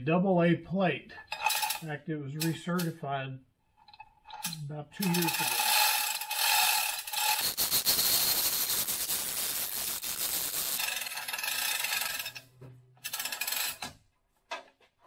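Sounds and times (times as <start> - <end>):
chain hoist rattling and clicking: 1.3 - 1.9, 3.8 - 14.0.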